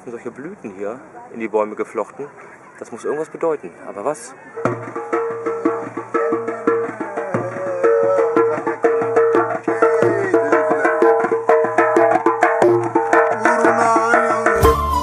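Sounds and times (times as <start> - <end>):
hand drum strokes: 4.6 - 15.0
melody of sliding notes: 14.3 - 15.0.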